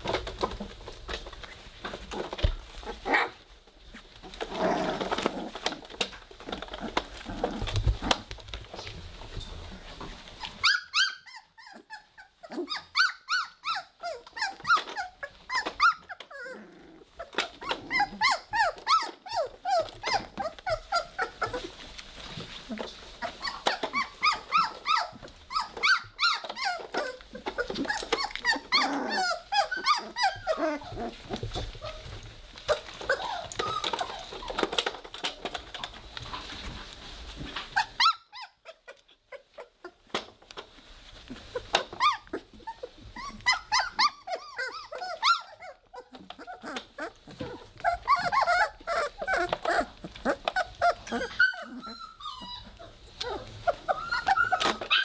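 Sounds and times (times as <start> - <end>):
puppy growling: 0.0 - 9.0, 10.4 - 36.6, 41.1 - 55.0
puppies squealing and yelping: 10.2 - 55.0.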